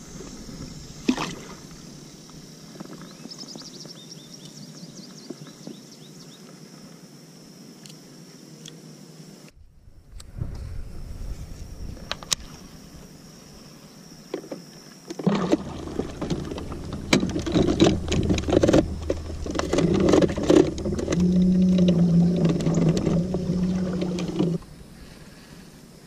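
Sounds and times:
clunks and knocks of motor shaft: 0:14.4 - 0:24.7
electric trolling motor humming: 0:15.2 - 0:25.6.

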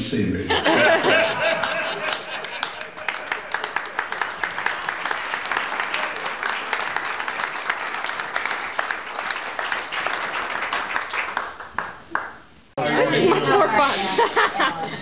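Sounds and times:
crowd applauding: 0:01.0 - 0:12.4.

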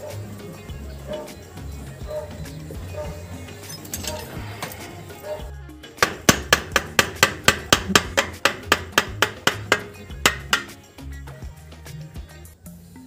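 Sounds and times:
background music: 0:00.0 - 0:13.0
hammer tapping on metal: 0:05.8 - 0:10.8.

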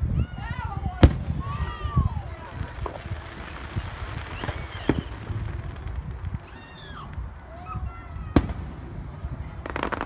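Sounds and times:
fireworks crackling: 0:00.0 - 0:10.0
firework bang: 0:01.0 - 0:07.2, 0:08.2 - 0:08.9
high sliding cries: 0:04.2 - 0:05.2.

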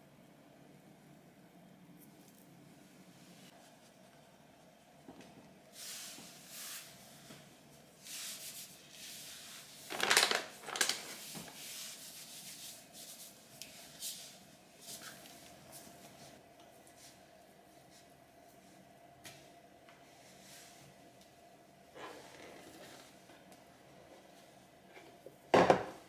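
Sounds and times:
flour rubbed by hand: 0:08.0 - 0:09.9, 0:11.1 - 0:16.4.

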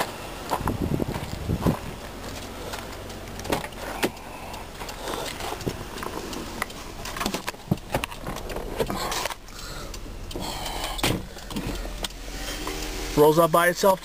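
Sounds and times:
power window motor: 0:10.4 - 0:13.4.

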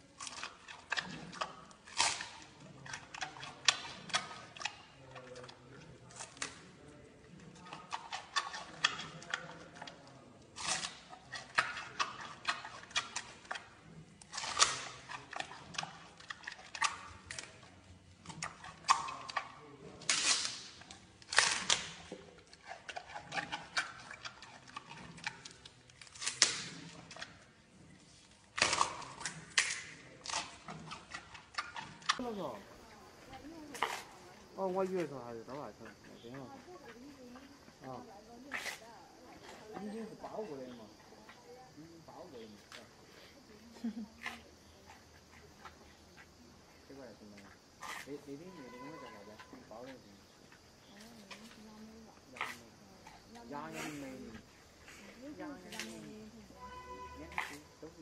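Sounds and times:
panda chewing bamboo: 0:00.1 - 0:35.0, 0:47.5 - 0:48.1, 0:50.0 - 0:58.0.

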